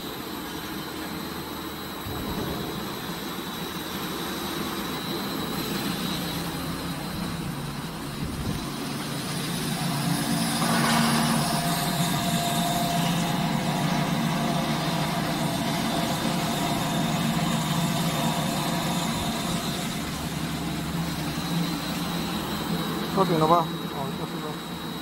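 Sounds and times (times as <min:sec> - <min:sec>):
mixer motor hum and whine: 0:00.0 - 0:25.0.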